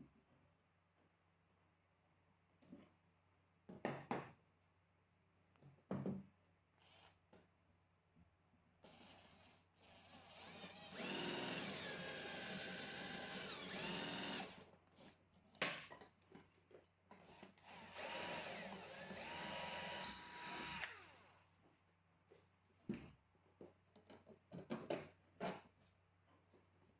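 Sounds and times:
cordless drill boring into wood: 8.8 - 14.6, 17.3 - 21.4.

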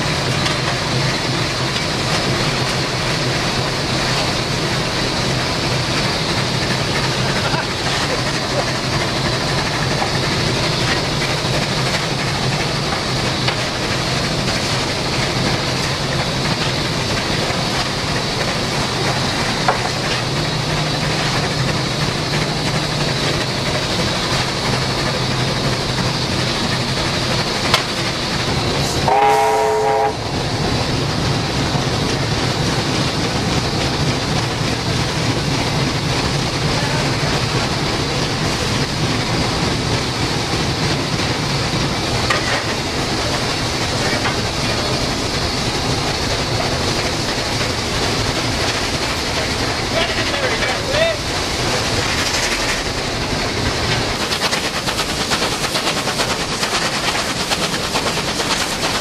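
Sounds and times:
steam locomotive rumble and hiss: 0.0 - 59.0
steam whistle blast: 29.0 - 30.2.

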